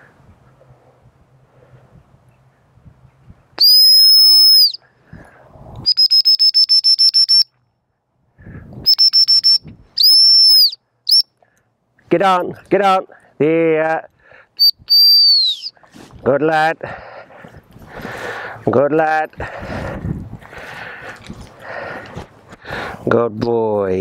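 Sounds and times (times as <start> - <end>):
training whistle blasts and pips: 3.6 - 4.8, 5.8 - 7.6, 8.8 - 11.4, 14.6 - 15.8.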